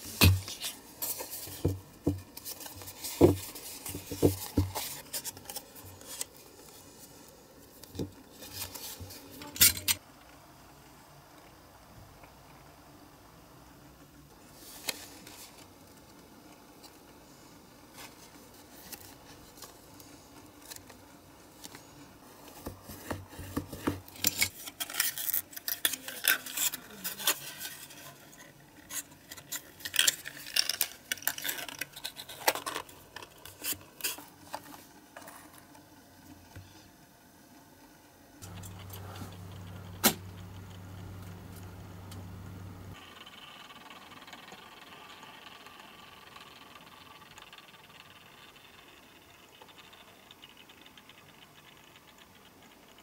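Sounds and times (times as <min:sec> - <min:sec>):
turntable motor hum: 0:38.4 - 0:49.7.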